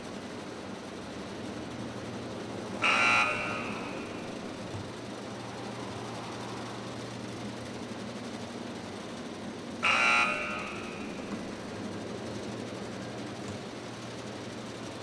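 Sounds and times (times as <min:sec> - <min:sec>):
steady low hum: 0:00.0 - 0:15.0
short loud buzzer: 0:02.8 - 0:04.7, 0:09.8 - 0:11.5.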